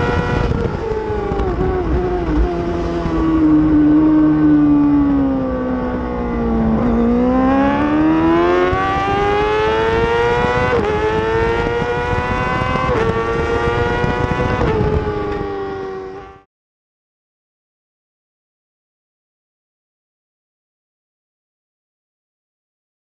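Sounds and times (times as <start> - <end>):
racing motorcycle engine: 0.0 - 16.5.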